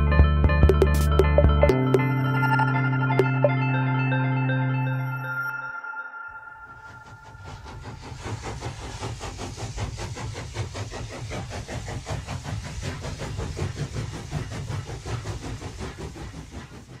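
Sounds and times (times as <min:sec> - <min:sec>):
train running: 0:06.4 - 0:17.0.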